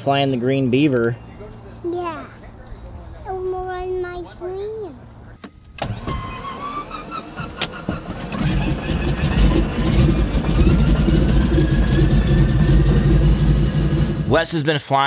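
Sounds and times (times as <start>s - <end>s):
plane engine rumbling: 4.3s - 14.3s
starter motor whine: 5.6s - 14.3s.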